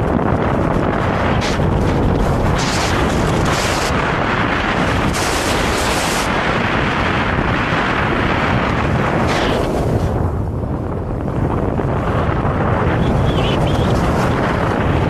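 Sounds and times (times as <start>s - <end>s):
wind buffeting microphone: 0.0s - 15.0s
skis scraping over snow: 0.9s - 10.3s, 12.7s - 15.0s.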